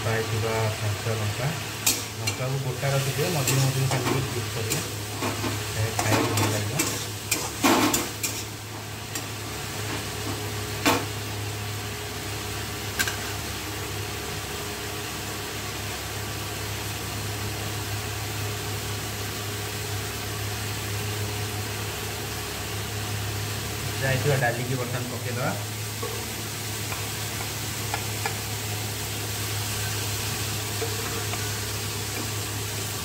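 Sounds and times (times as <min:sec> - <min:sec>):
faint frying sizzle: 0:00.0 - 0:33.0
spatula scraping metal wok: 0:01.8 - 0:09.3.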